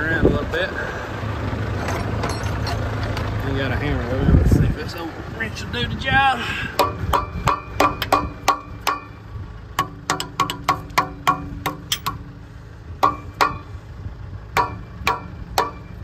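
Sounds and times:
wrench striking metal: 1.8s - 2.8s, 6.8s - 9.2s, 9.8s - 12.3s, 13.0s - 13.7s, 14.6s - 16.0s.

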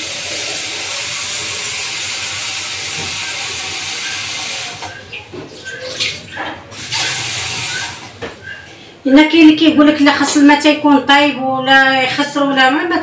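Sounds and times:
tap running into sink: 2.7s - 8.6s.

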